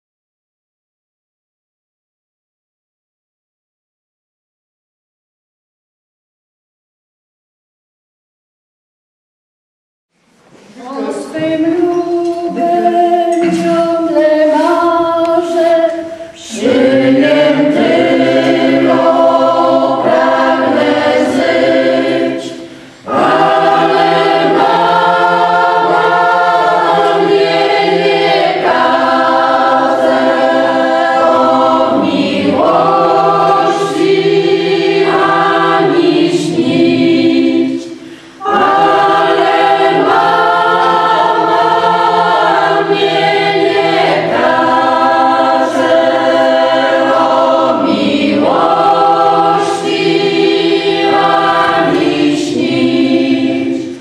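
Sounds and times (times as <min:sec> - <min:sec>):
women singing unaccompanied: 0:11.2 - 0:54.0.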